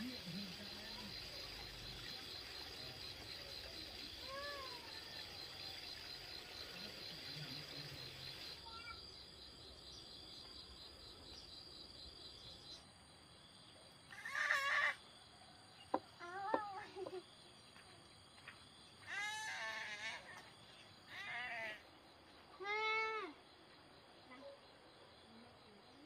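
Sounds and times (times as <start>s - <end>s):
high insect drone: 0.0s - 15.3s.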